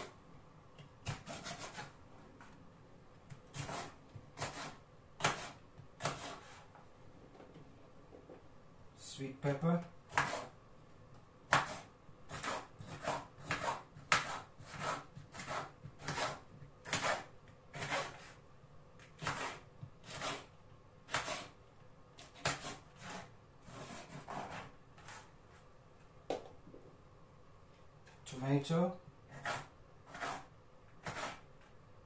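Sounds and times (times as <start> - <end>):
knife chopping on cutting board: 1.0 - 1.9, 3.3 - 6.6, 10.1 - 10.5, 11.5 - 18.3, 19.0 - 20.5, 21.1 - 21.6, 22.2 - 25.2, 29.3 - 31.4.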